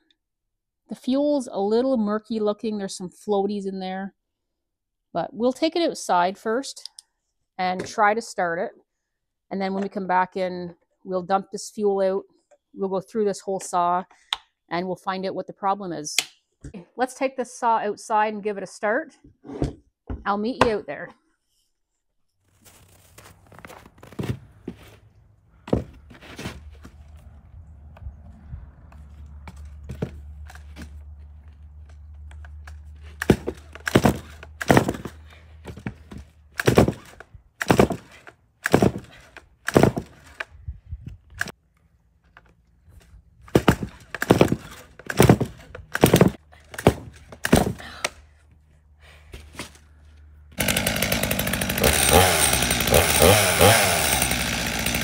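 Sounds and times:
chainsaw engine running: 0:32.4 - 0:40.4, 0:50.5 - 0:55.0.

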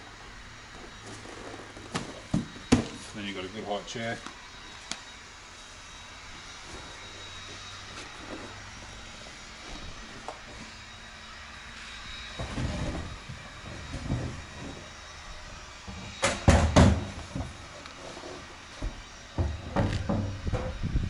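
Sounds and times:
sharp loud knocks: 0:16.2 - 0:17.1.

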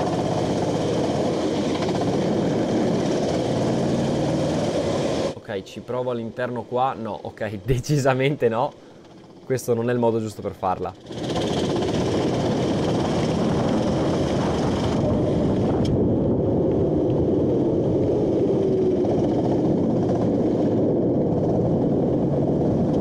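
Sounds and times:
go-kart engine: 0:00.0 - 0:05.4, 0:11.0 - 0:23.0.

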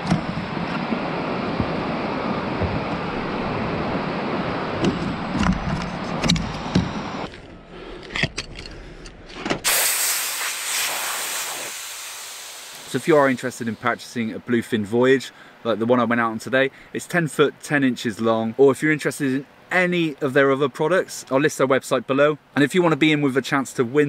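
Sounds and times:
surf: 0:00.0 - 0:07.2
rushing wind: 0:00.0 - 0:14.0
air hissing out of valve: 0:09.6 - 0:13.9.

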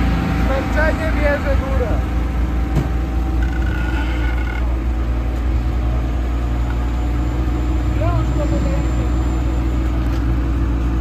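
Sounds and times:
vehicle engine running at low revs: 0:00.0 - 0:11.0.

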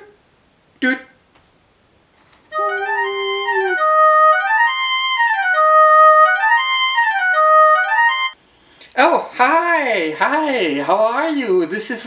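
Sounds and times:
held low note: 0:02.5 - 0:06.4.

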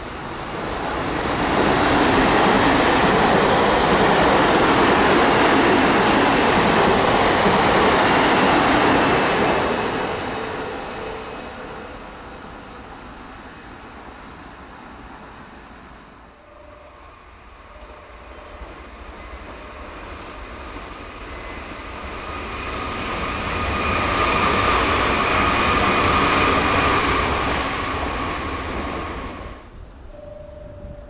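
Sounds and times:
train rail and running noise: 0:00.0 - 0:31.0
steady high whine: 0:16.2 - 0:26.7.

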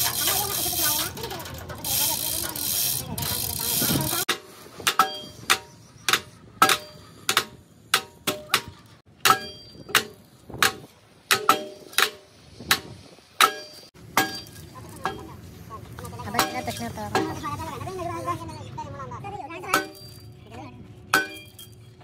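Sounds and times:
hammer striking metal: 0:04.3 - 0:15.3, 0:19.7 - 0:20.2, 0:21.1 - 0:21.8.

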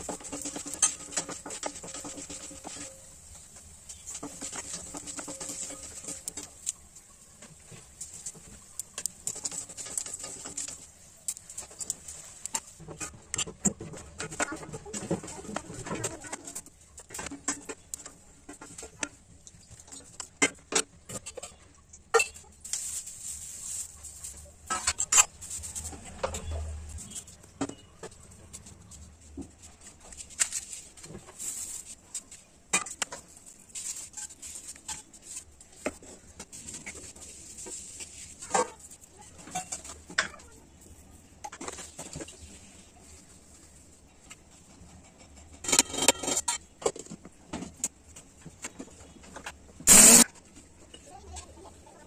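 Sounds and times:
metal utensils clinking on a pan: 0:00.0 - 0:03.2, 0:04.0 - 0:06.7, 0:45.5 - 0:46.9.

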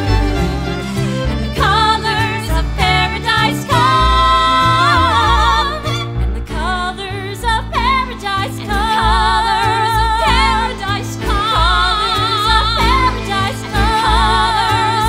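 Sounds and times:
instrumental accompaniment: 0:00.0 - 0:15.0
voices singing with vibrato: 0:00.0 - 0:15.0.

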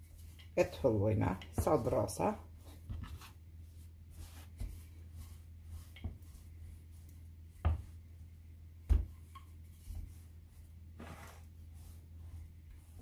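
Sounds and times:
rolling pin rolling dough: 0:00.0 - 0:13.0.

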